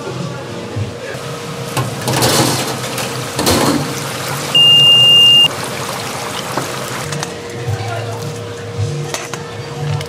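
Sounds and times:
high-pitched electronic beep: 0:04.6 - 0:05.5.

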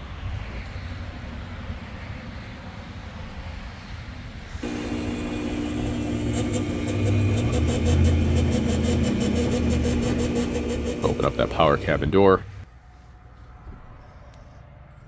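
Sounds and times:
fast fine ticking: 0:04.6 - 0:12.0
electric motor humming: 0:04.6 - 0:12.6.

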